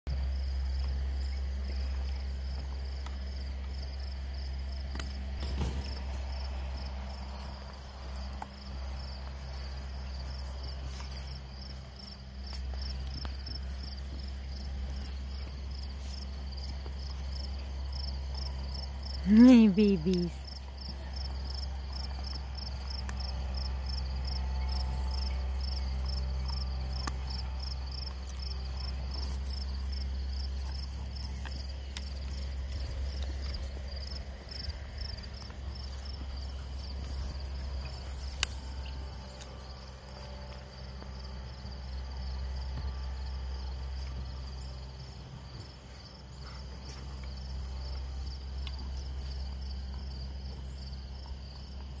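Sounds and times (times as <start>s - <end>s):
crickets chirping: 0.1s - 52.0s
low steady rumble: 20.5s - 50.8s.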